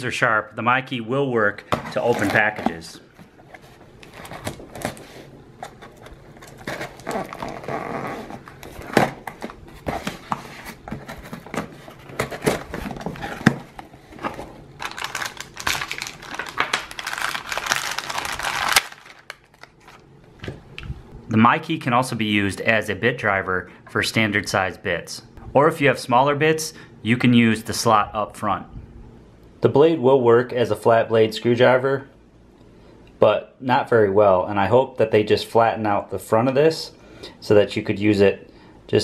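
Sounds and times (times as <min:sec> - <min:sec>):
packing tape tearing: 0:05.8 - 0:10.4, 0:14.8 - 0:20.0.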